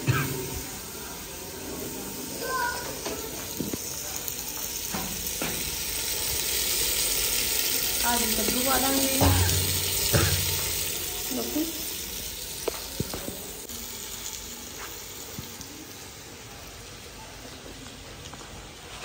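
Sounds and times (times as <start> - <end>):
food sizzling in a pot: 0.0 - 19.0.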